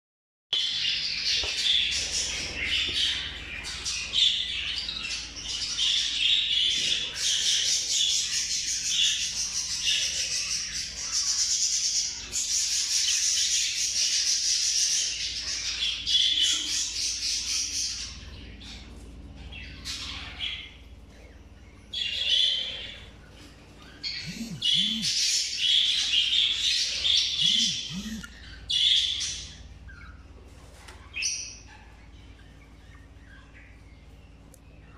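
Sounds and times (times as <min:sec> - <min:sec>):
budgerigar warbling: 0:24.0 - 0:25.5, 0:26.9 - 0:29.5.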